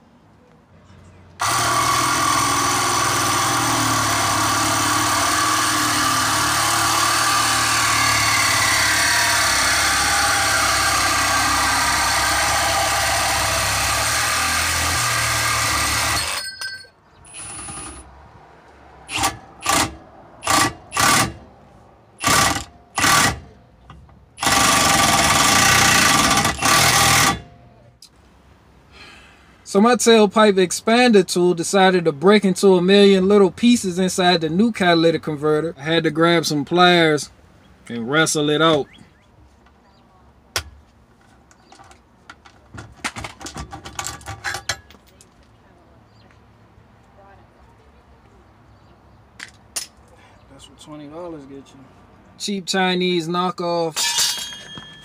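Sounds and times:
reciprocating saw cutting steel pipe: 0:01.4 - 0:16.4, 0:19.1 - 0:21.4, 0:22.2 - 0:23.5, 0:24.4 - 0:27.5
impact wrench bursts: 0:01.4 - 0:16.6, 0:17.3 - 0:18.1, 0:19.0 - 0:21.5, 0:22.2 - 0:23.6, 0:24.4 - 0:27.5.

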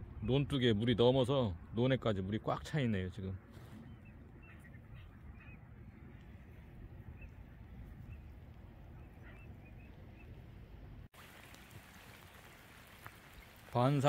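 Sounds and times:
hissy outdoor ambience: 0:00.0 - 0:14.0
faint short bird calls: 0:03.4 - 0:08.3, 0:09.0 - 0:10.3
wind rumble on microphone: 0:03.4 - 0:13.7.

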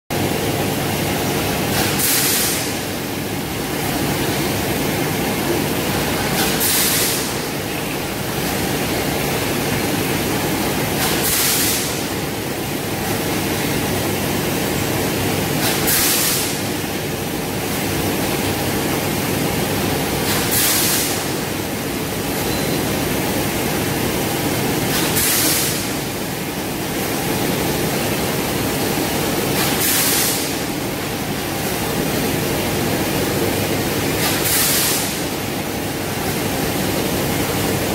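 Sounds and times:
factory machinery humming: 0:00.1 - 0:37.9
hissing air bursts: 0:01.7 - 0:02.8, 0:05.9 - 0:07.5, 0:11.0 - 0:12.1, 0:15.6 - 0:16.6, 0:20.2 - 0:21.4, 0:24.9 - 0:26.0, 0:29.5 - 0:30.6, 0:34.2 - 0:35.3.

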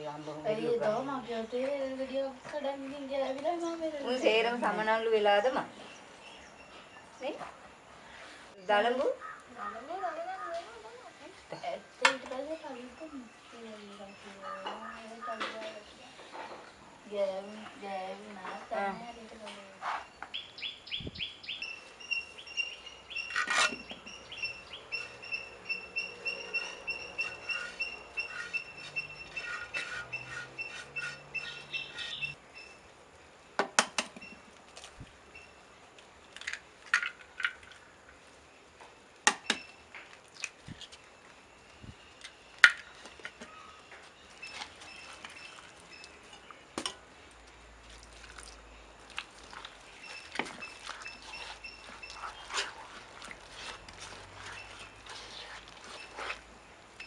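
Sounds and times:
birds chirping: 0:03.3 - 0:32.9, 0:41.1 - 0:46.8, 0:48.7 - 0:57.0
wet rubbing of kneading: 0:23.2 - 0:32.4, 0:44.0 - 0:46.3, 0:47.3 - 0:57.0
eggs cracking: 0:39.2 - 0:41.2, 0:44.4 - 0:57.0.

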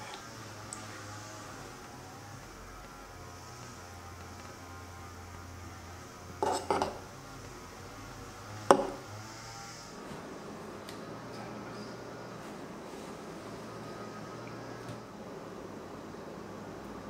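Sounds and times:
metal spoon clinking ceramic bowl: 0:06.4 - 0:07.0.

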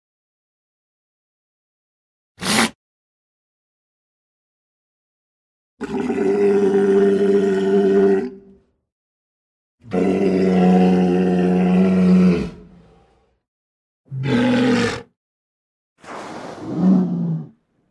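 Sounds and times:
walrus bellowing: 0:14.1 - 0:15.1.

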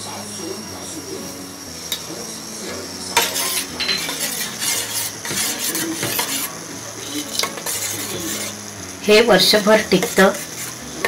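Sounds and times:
metal spoon scraping a pot: 0:03.1 - 0:08.7, 0:09.8 - 0:11.0.

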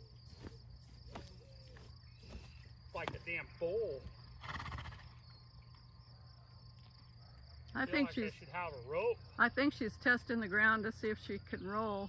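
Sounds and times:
hoof scraping dry ground: 0:00.0 - 0:03.3
crickets chirping: 0:00.0 - 0:12.0.

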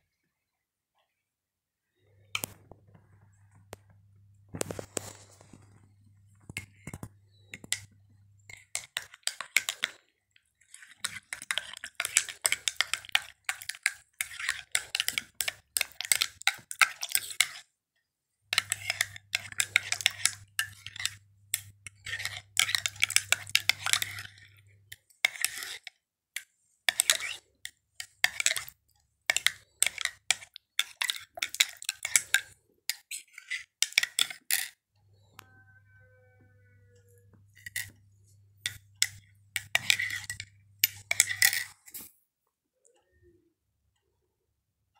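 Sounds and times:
spoon clinking in a ceramic mug: 0:38.6 - 0:41.7.

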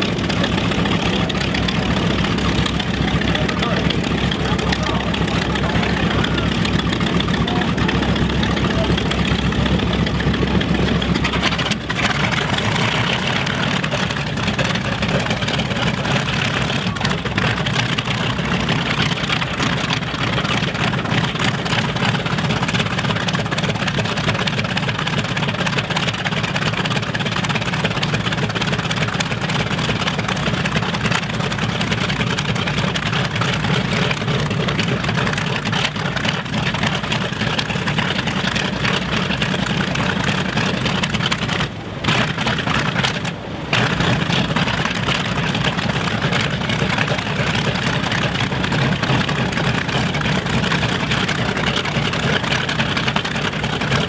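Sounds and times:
radial aircraft engine running: 0:00.0 - 0:54.0.

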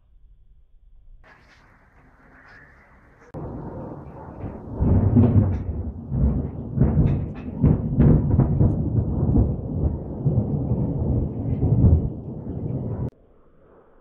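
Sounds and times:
thunder rumbling: 0:02.3 - 0:13.2
sharp thunder cracks: 0:03.3 - 0:13.1.

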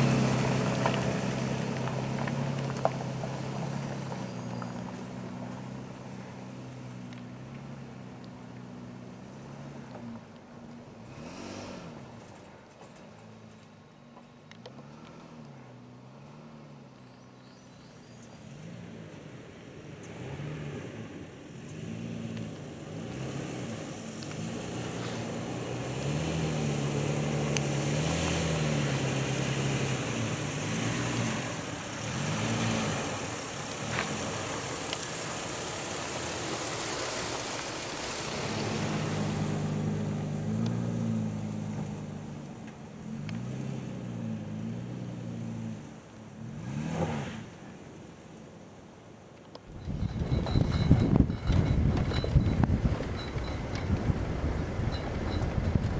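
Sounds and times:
pickup truck engine revving: 0:00.0 - 0:02.8, 0:20.2 - 0:42.4, 0:46.4 - 0:47.6
tyres on gravel: 0:00.0 - 0:10.9, 0:22.4 - 0:43.4.

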